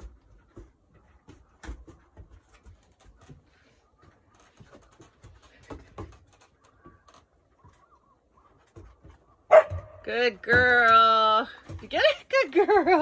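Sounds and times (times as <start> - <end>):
paws tapping on wooden boards: 0.0 - 13.0.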